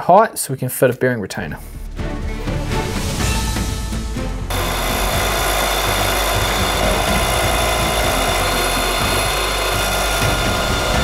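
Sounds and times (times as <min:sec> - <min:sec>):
high spindle whine: 0:04.5 - 0:11.0
milling machine cutting metal: 0:04.5 - 0:11.0.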